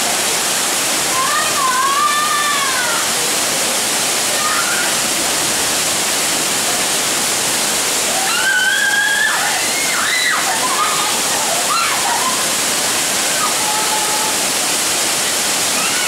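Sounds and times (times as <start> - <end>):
waterfall rushing: 0.0 - 16.0
voices calling out: 8.0 - 14.6.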